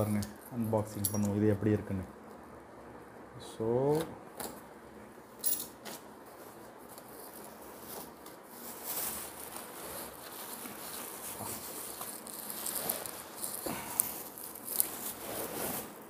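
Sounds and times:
cardboard and plastic crinkling: 5.9s - 16.0s.

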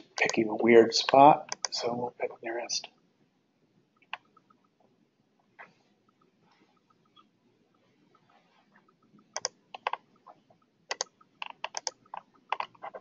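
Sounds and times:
keyboard and mouse clicking: 0.0s - 0.4s, 1.0s - 1.8s, 4.0s - 4.7s, 5.6s - 13.0s.

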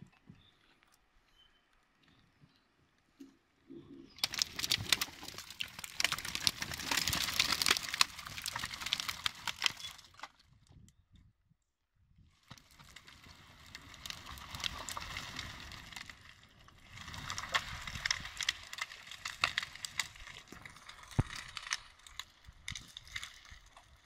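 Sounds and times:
twigs rustling and crackling: 4.0s - 10.4s, 12.4s - 24.0s.

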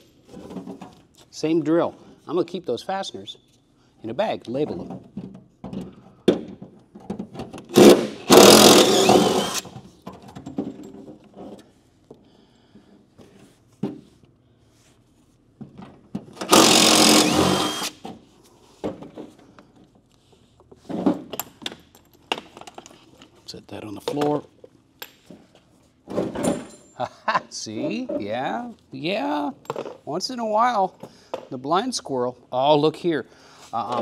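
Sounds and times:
impact wrench running: 7.7s - 9.7s, 16.4s - 18.0s.

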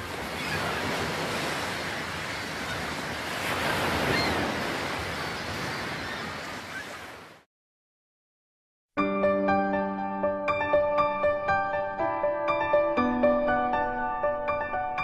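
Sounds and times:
waves breaking on shore: 0.0s - 7.5s.

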